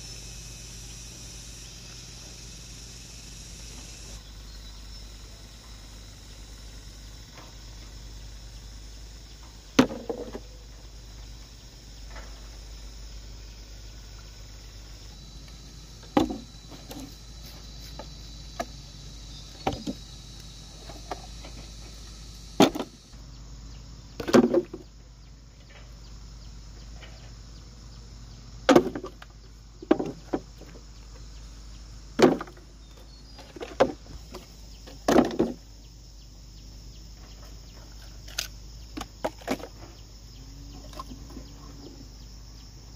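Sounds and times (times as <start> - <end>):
knocks and thuds: 9.7 - 10.6, 16.0 - 17.1, 19.5 - 20.0, 22.6 - 23.0, 24.2 - 24.9, 28.7 - 29.2, 29.8 - 30.8, 32.2 - 32.6, 33.4 - 35.6.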